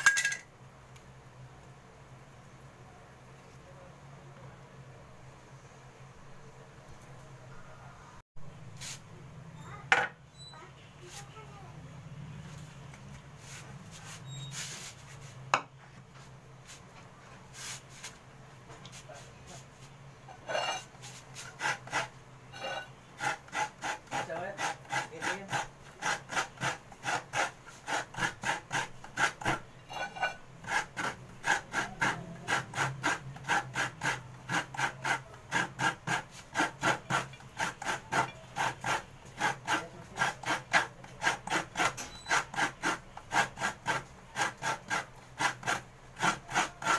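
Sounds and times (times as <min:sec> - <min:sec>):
coconut grating on metal blade: 0:20.4 - 0:46.9.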